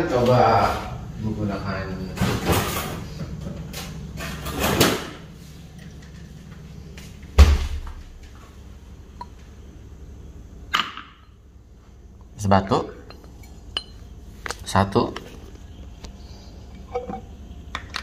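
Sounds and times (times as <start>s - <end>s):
heavy thump: 7.4s - 8.1s.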